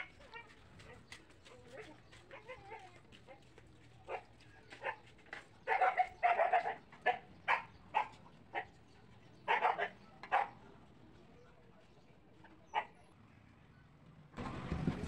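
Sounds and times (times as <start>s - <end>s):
dog barking: 4.1s - 8.7s, 9.4s - 10.6s, 12.7s - 13.0s.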